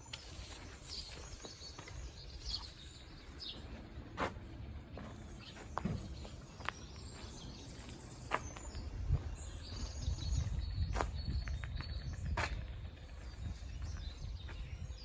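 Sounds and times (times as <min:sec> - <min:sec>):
small birds chirping: 0:00.0 - 0:15.0
wind rumble on microphone: 0:05.8 - 0:15.0.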